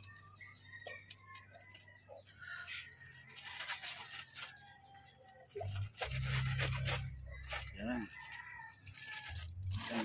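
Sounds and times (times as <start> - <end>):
foil crinkling and tearing: 2.8 - 10.0
knife slitting foil packet: 3.1 - 4.6, 5.4 - 10.0.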